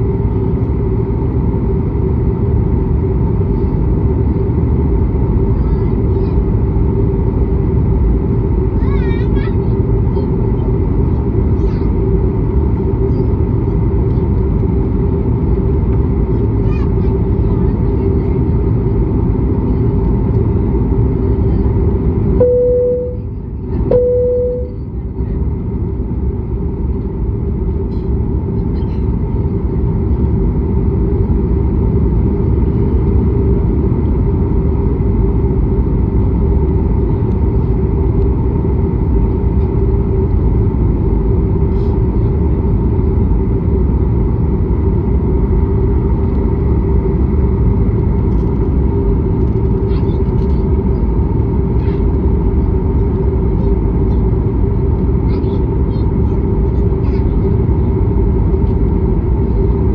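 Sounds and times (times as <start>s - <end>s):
constant hum: 0.0s - 59.9s
jet engine rumble in cabin: 0.0s - 59.9s
short beeping tones: 22.4s - 23.3s, 23.9s - 24.9s.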